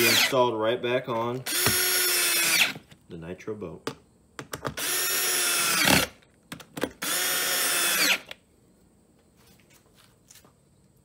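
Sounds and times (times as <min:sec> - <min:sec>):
power drill driving screws: 0:00.0 - 0:00.4, 0:01.4 - 0:02.8, 0:04.8 - 0:06.2, 0:07.0 - 0:08.4.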